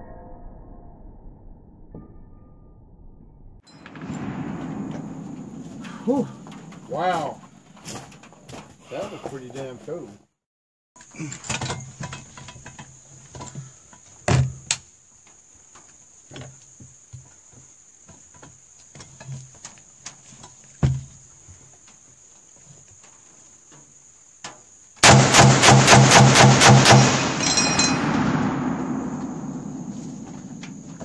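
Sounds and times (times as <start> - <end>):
high-pitched insect chorus: 4.1 - 8.1, 11.0 - 25.0, 26.8 - 31.0.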